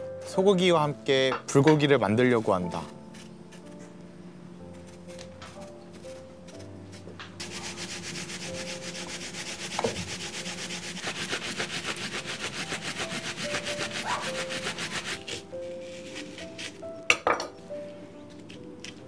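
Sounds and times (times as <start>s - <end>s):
hand grater scraping: 7.4s - 16.2s.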